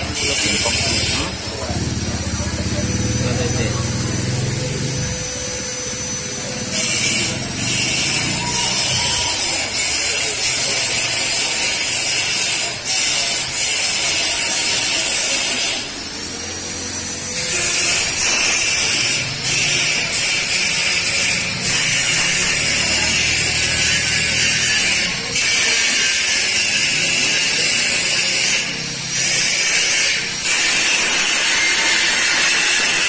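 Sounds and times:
welding torch flame hissing: 0:06.8 - 0:33.0.

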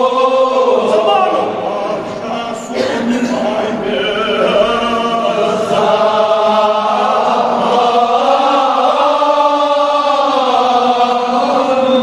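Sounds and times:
man chanting an elegy: 0:00.7 - 0:04.4.

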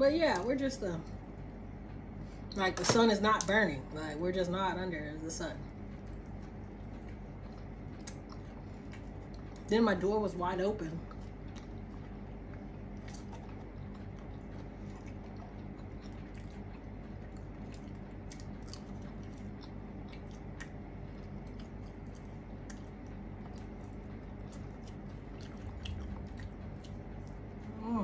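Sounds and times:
steady low hum: 0:00.0 - 0:28.0
mouth chewing clicks and smacks: 0:05.6 - 0:09.7, 0:11.0 - 0:27.6.

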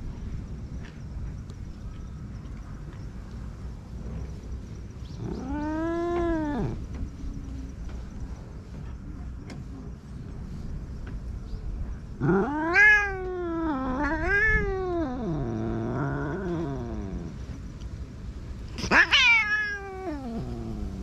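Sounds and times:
cat meowing: 0:05.2 - 0:06.8, 0:12.2 - 0:17.3, 0:18.8 - 0:21.0.

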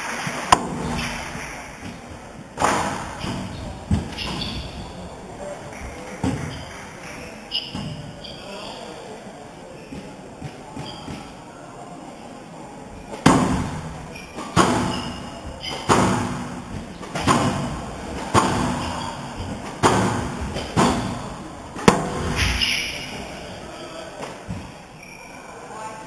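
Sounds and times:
squash ball cracks: 0:00.5 - 0:02.0, 0:21.8 - 0:22.6.

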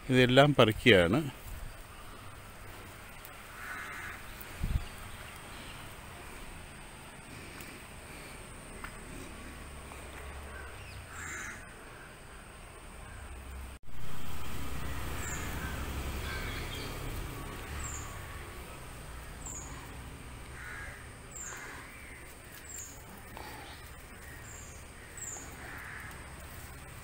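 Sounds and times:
crows cawing: 0:03.4 - 0:04.6, 0:10.0 - 0:12.4, 0:14.8 - 0:17.0, 0:17.7 - 0:26.7.

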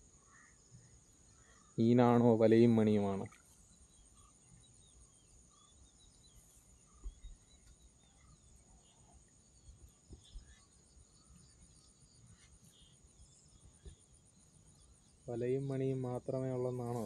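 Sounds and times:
faint bird chirps: 0:00.0 - 0:17.0
insect chirring: 0:00.0 - 0:17.0
soft low thumps: 0:06.9 - 0:07.6.

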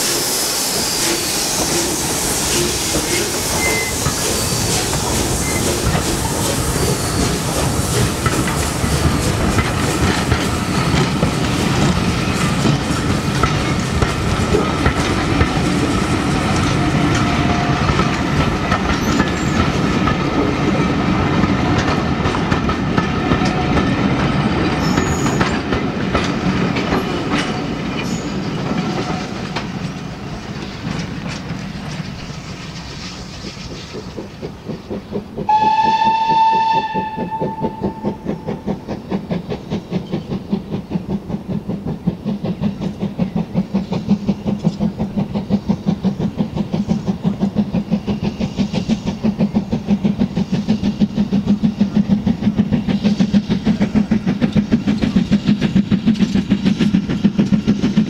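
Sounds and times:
thin wheel squeal: 0:00.0 - 0:07.5, 0:24.8 - 0:25.4
steam hissing: 0:00.0 - 0:58.0
train rumbling by: 0:00.0 - 0:58.0
wheels clicking over rail joints: 0:02.5 - 0:58.0.

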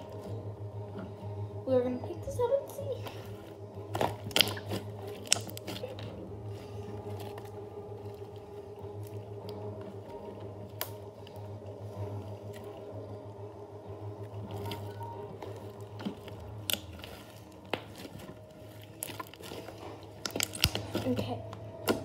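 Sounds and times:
steady low hum: 0:00.0 - 0:22.0
slime popping and squelching: 0:03.0 - 0:11.5, 0:14.3 - 0:22.0.

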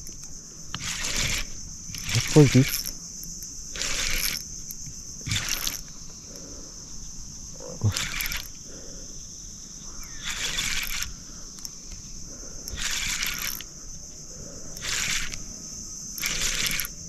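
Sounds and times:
high-pitched insect drone: 0:00.0 - 0:17.0
short hissing rushes: 0:09.9 - 0:11.6, 0:12.2 - 0:17.0.

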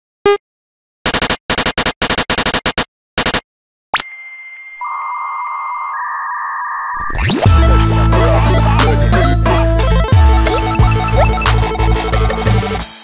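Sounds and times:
lower electronic tone: 0:04.0 - 0:12.3
steady high tone: 0:04.0 - 0:12.4
short buzzy beeps: 0:09.8 - 0:11.6.

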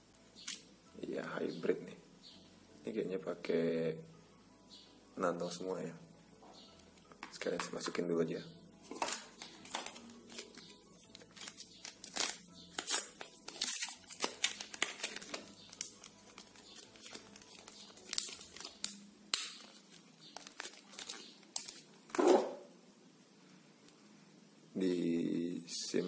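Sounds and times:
packaging crinkling and crackling: 0:08.9 - 0:22.2.

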